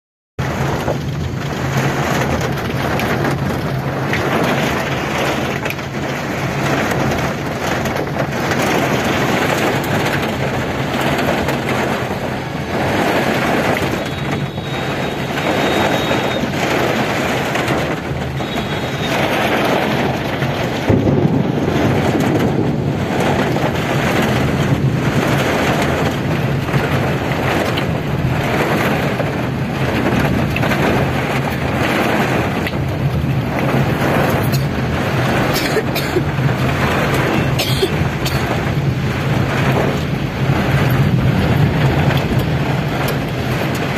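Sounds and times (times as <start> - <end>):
heavy rain drumming on vehicle roof: 0.4 - 43.9.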